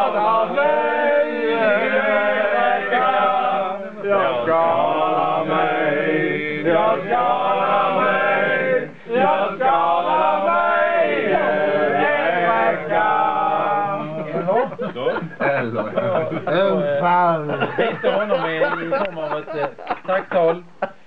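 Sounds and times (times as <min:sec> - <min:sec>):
men chanting together: 0:00.0 - 0:14.5.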